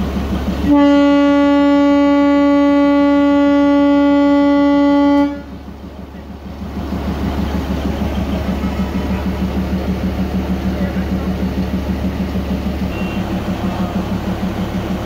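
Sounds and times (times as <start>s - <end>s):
diesel engine idling: 0.0s - 15.0s
locomotive horn blast: 0.6s - 5.6s, 12.8s - 14.0s.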